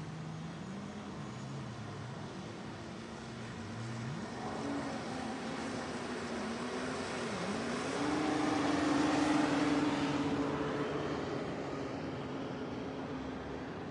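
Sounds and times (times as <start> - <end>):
wind: 0.0 - 13.9.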